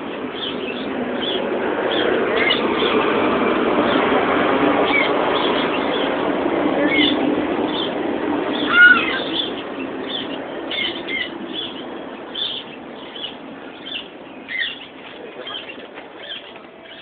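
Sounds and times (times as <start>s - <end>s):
small animals chirping and squeaking: 8.6s - 11.8s.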